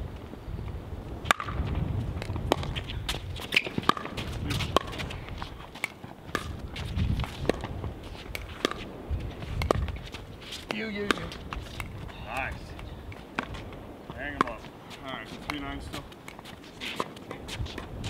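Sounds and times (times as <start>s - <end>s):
paddles striking pickleball: 1.3s - 1.6s, 2.2s - 8.9s, 9.5s - 14.7s
ball bouncing on hard court: 1.3s - 5.2s, 5.8s - 8.9s, 9.6s - 10.0s, 10.7s - 12.5s, 13.4s - 14.7s
footsteps on court: 1.6s - 18.0s.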